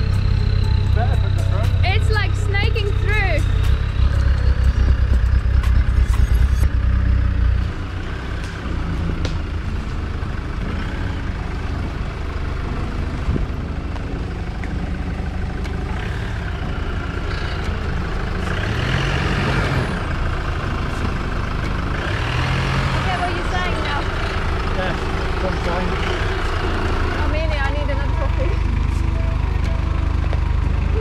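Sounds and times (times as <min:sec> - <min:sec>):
off-road vehicle engine revving: 0:00.0 - 0:13.6, 0:15.0 - 0:31.0
diesel engine rumbling: 0:00.0 - 0:31.0.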